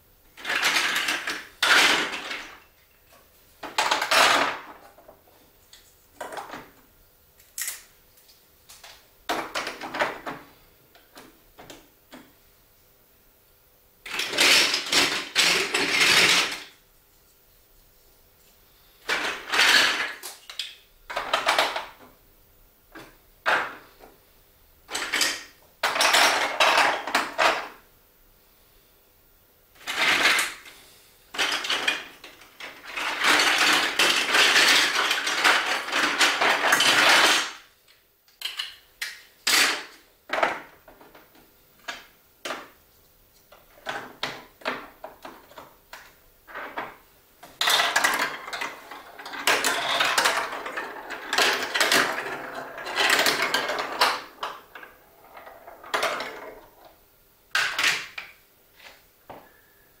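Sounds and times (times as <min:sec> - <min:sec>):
marble run clattering: 0:14.1 - 0:16.7, 0:19.1 - 0:20.2, 0:31.4 - 0:37.6, 0:47.6 - 0:56.8.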